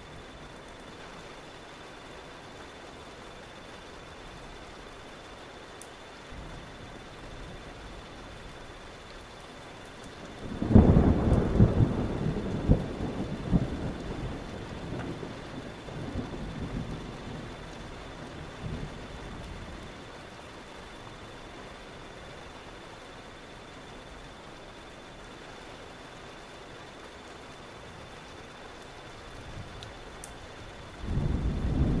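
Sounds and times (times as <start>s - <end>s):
steady rain: 0.0s - 32.0s
thunder rumbling: 10.3s - 20.1s, 30.7s - 32.0s
loud thunderclap: 31.0s - 32.0s.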